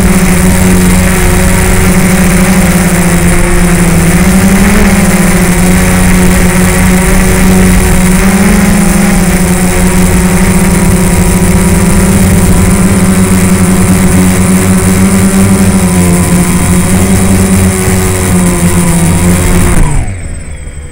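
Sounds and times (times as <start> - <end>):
drone propellers humming: 0.0 - 20.9.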